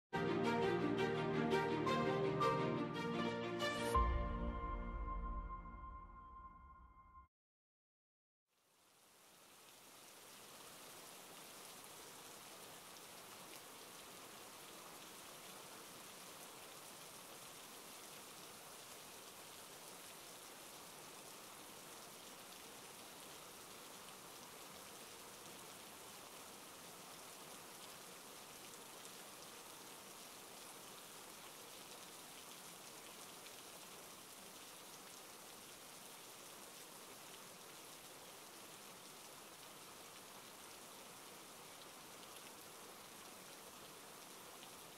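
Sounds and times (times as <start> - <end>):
faint rain hiss: 8.5 - 44.9.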